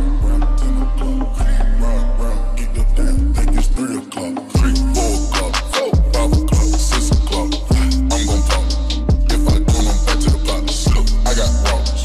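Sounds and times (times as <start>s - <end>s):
beat with deep bass: 3.1s - 3.8s, 4.6s - 12.0s.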